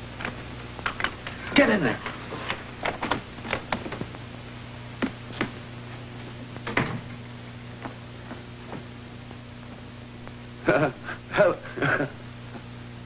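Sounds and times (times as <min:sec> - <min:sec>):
film soundtrack hum and hiss: 0:00.0 - 0:13.0
footsteps on floor: 0:05.0 - 0:05.6, 0:07.8 - 0:08.9
door shutting: 0:06.6 - 0:07.2.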